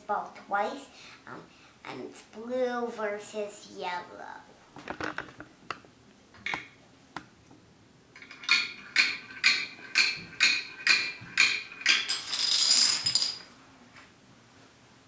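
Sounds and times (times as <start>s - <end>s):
plastic domino clacks: 8.2s - 13.4s
dominoes toppling clatter: 11.4s - 13.4s.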